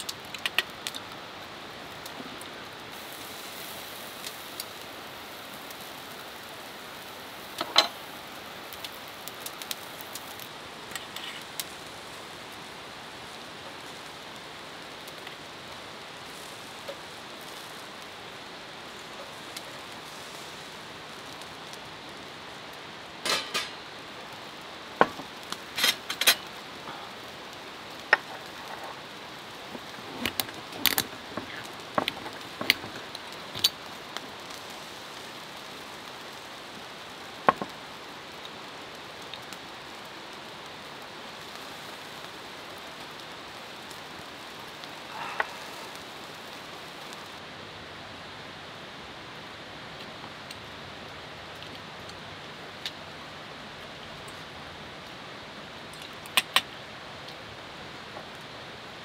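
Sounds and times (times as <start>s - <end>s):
rain hissing: 0.0s - 59.0s
metal utensils clinking: 23.2s - 23.8s, 25.7s - 26.5s.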